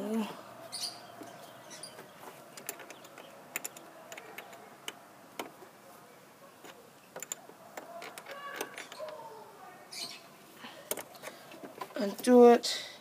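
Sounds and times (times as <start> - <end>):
plastic connectors clicking: 2.0 - 5.6, 6.6 - 9.2.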